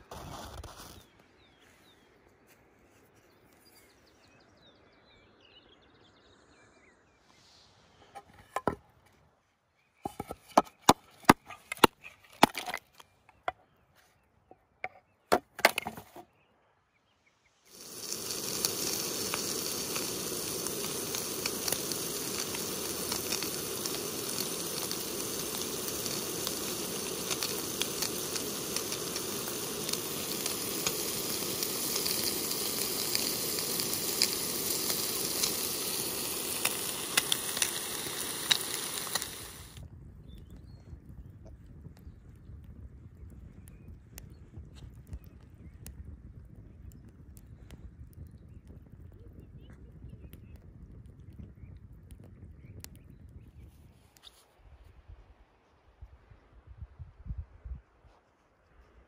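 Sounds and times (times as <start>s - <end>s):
ice cracking on wooden board: 0.0s - 1.1s, 10.1s - 13.0s, 15.3s - 16.2s
bacon sizzling in frying pan: 17.7s - 39.8s.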